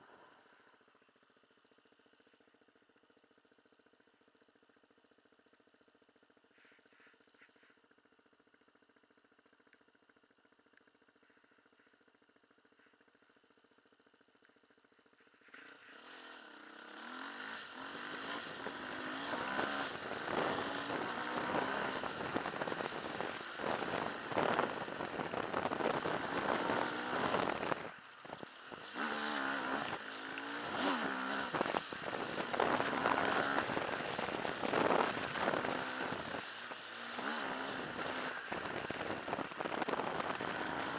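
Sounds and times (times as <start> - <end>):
off-road motorcycle engine: 0.0 - 40.9
steady rush of noise: 17.0 - 40.9.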